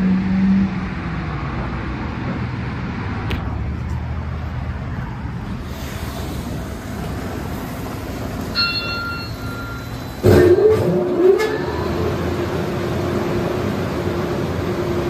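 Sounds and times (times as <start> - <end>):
car wash rumble and hiss: 1.0 - 15.0
high electronic beep: 8.6 - 10.4.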